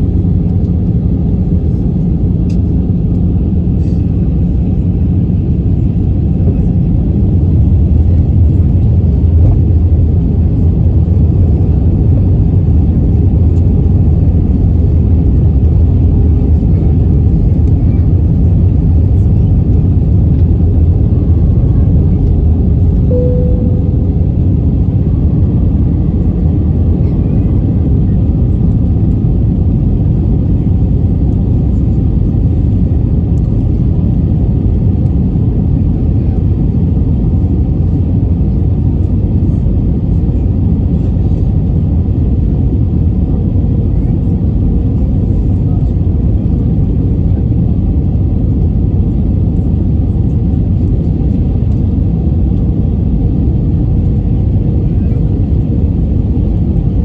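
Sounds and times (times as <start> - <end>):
jet cabin rumble: 0.0 - 57.0.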